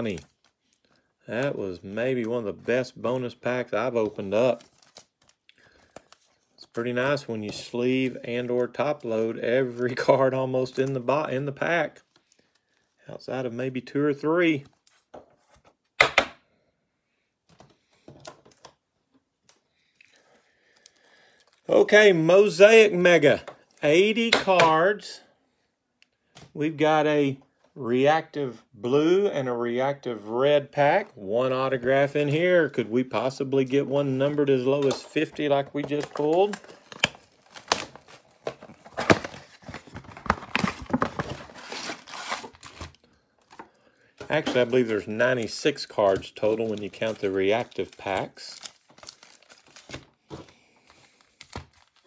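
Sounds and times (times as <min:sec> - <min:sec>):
cardboard ripping: 0:37.5 - 0:43.0.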